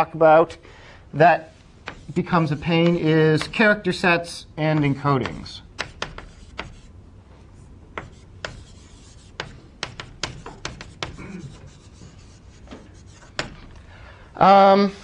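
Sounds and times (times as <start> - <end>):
scratchy writing strokes on board: 1.8 - 4.0, 4.7 - 13.7.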